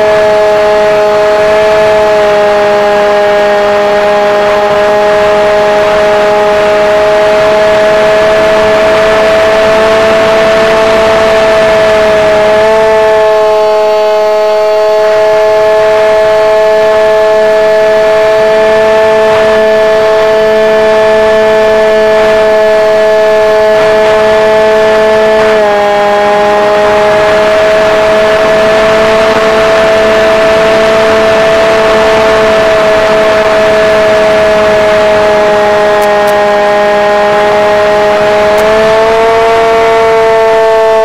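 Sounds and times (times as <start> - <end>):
electric motor and propeller whine: 0.0 - 41.0
rushing wind: 3.9 - 40.5.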